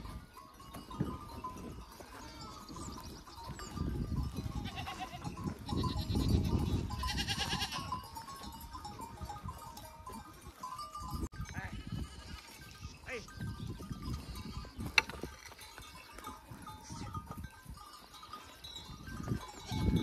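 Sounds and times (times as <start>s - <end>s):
goats bleating: 1.8s - 8.5s, 11.5s - 13.3s, 19.4s - 20.0s.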